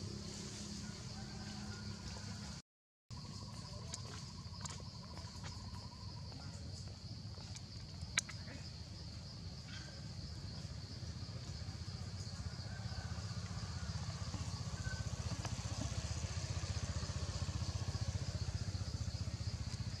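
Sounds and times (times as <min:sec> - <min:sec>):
insects buzzing: 0:03.2 - 0:20.0
small engine running: 0:12.1 - 0:20.0.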